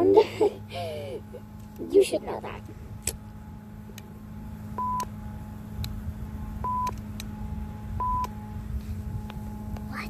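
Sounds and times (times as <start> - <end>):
steady low hum: 0.0 - 10.0
short electronic beeps: 4.8 - 5.1, 6.6 - 7.0, 8.0 - 8.3.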